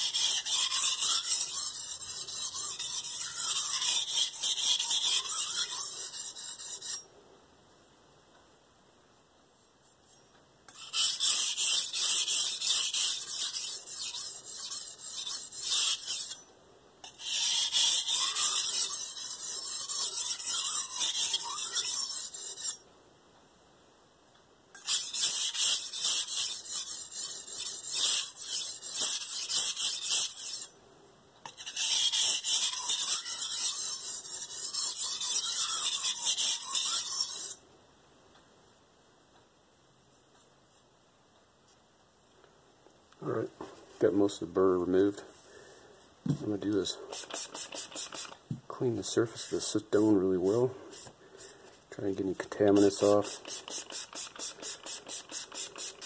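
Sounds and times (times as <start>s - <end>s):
knife rasping on whetstone: 0.0s - 7.0s, 10.7s - 16.4s, 17.0s - 22.8s, 24.8s - 30.7s, 31.5s - 37.6s, 46.3s - 48.4s, 52.5s - 56.0s.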